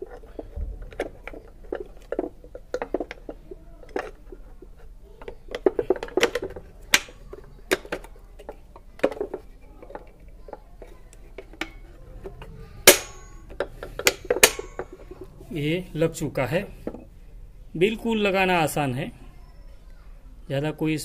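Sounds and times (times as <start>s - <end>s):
metallic clicks of brake parts: 12.8s - 15.2s.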